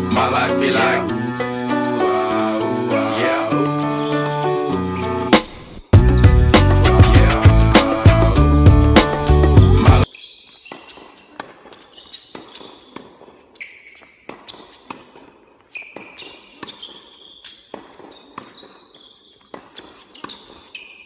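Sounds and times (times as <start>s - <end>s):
sneakers squeaking on court: 10.0s - 21.0s
tennis ball racket hits and bounces: 10.1s - 21.0s.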